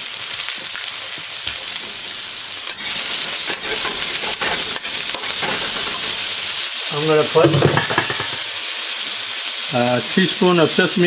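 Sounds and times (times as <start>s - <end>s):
ginger sizzling in oil: 0.0s - 11.0s
metal spatula scraping wok: 2.0s - 6.6s.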